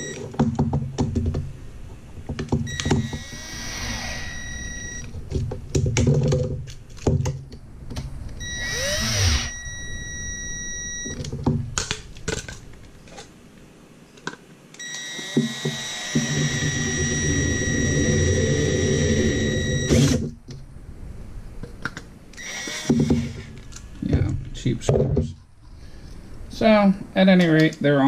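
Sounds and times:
cordless drill whining: 2.7s - 5.1s, 8.4s - 11.2s, 14.8s - 20.3s, 22.4s - 23.9s.

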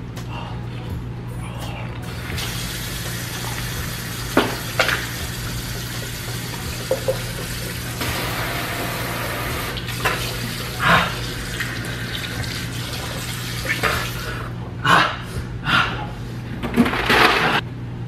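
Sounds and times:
kitchen faucet running: 2.1s - 14.5s
man spluttering and breathing: 10.6s - 11.5s.

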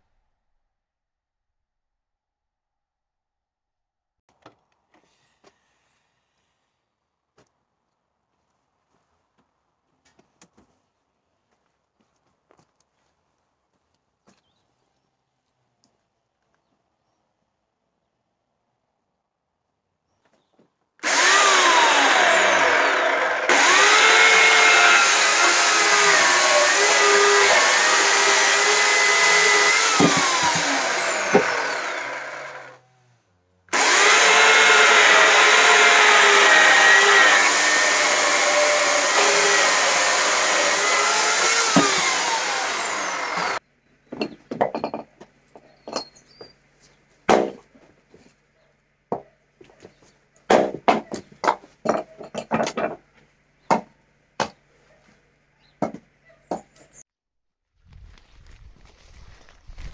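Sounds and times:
hatchet splitting wood: 21.0s - 32.7s, 33.7s - 43.6s, 47.3s - 47.8s, 50.5s - 53.0s, 53.7s - 54.6s, 55.8s - 56.8s
electric chainsaw cutting log: 21.0s - 43.6s.

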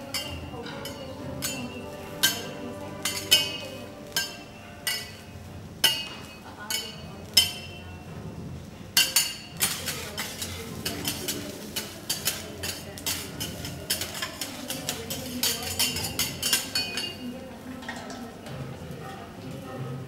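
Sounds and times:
steel spatulas scraping on griddle: 0.1s - 7.0s, 9.0s - 17.2s.

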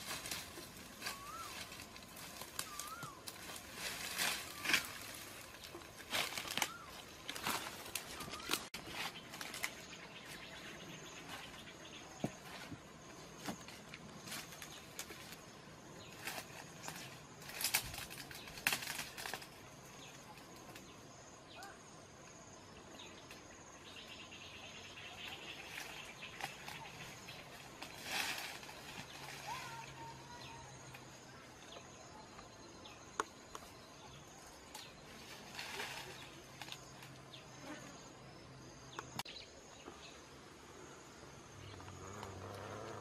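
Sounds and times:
dry grass rustling underfoot: 0.0s - 20.8s, 25.2s - 30.1s, 34.4s - 37.6s
lower insect sound: 0.0s - 43.0s.

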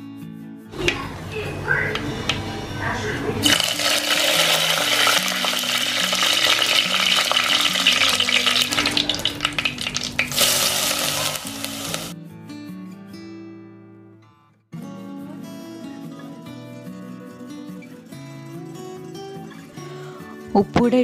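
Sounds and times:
soft background music: 0.0s - 13.4s, 14.8s - 21.0s
oil sizzling and crackling: 3.4s - 12.2s.

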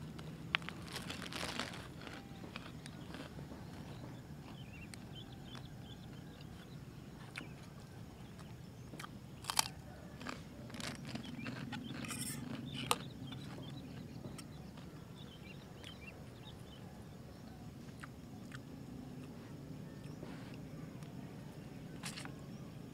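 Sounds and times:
crunchy chewing: 0.0s - 22.8s
fork scraping in metal pot: 12.0s - 12.5s.

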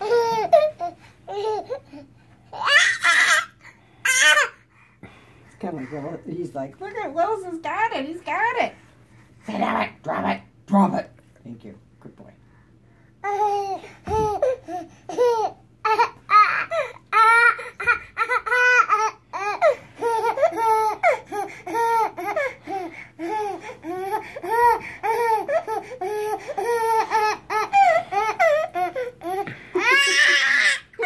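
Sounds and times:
baby laughing: 0.0s - 2.0s, 13.2s - 31.0s.

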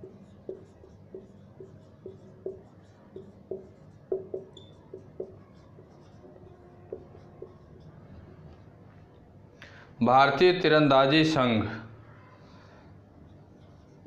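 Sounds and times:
marker writing on whiteboard: 0.0s - 9.2s, 13.2s - 14.0s.

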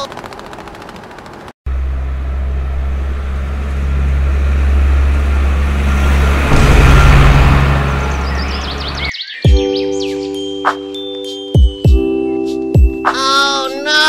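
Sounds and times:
large vehicle engine droning: 1.2s - 9.1s.

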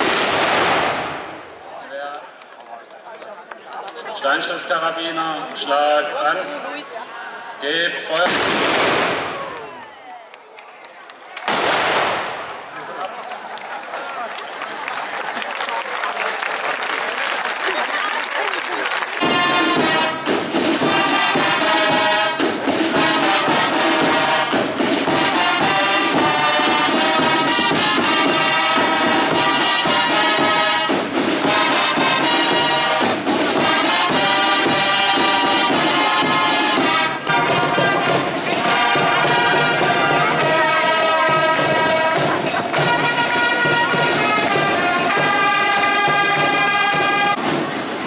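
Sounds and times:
brass and drum band playing: 0.0s - 1.6s, 7.6s - 9.4s, 11.5s - 12.6s, 16.4s - 48.0s.

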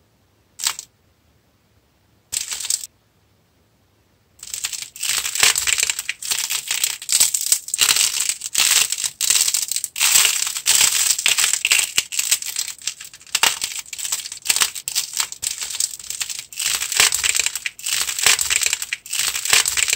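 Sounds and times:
hardened clay cracking: 4.4s - 19.9s.

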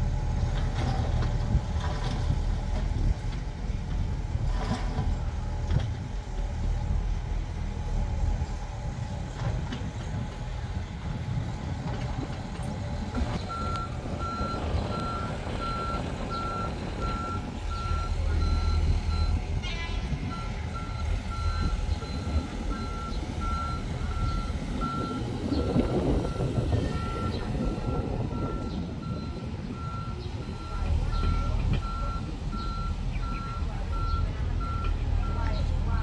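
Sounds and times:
diesel engine running: 0.0s - 36.0s
travel alarm beeping: 13.5s - 35.6s.

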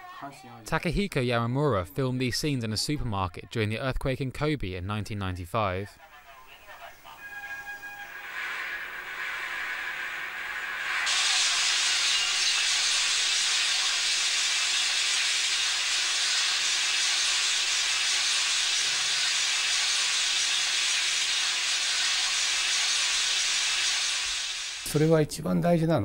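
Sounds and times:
static hiss: 6.2s - 25.2s.

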